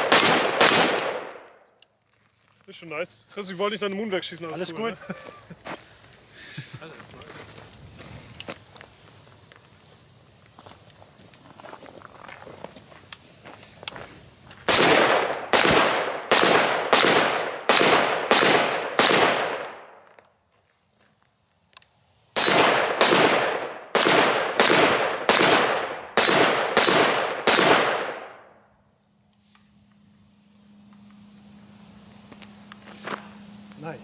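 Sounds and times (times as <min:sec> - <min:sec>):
rifle shots echoing: 0:00.0 - 0:01.6, 0:14.7 - 0:20.0, 0:22.4 - 0:28.5.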